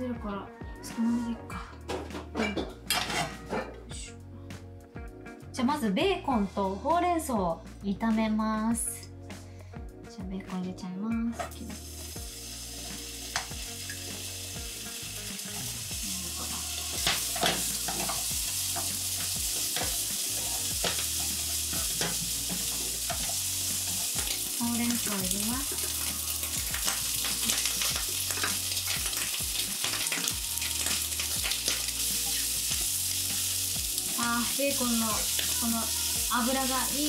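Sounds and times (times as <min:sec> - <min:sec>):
bacon sizzling in frying pan: 0:11.5 - 0:37.0.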